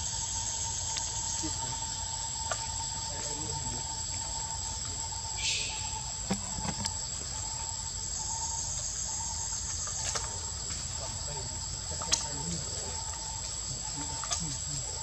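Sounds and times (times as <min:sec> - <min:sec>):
high-pitched insect drone: 0:00.0 - 0:15.0.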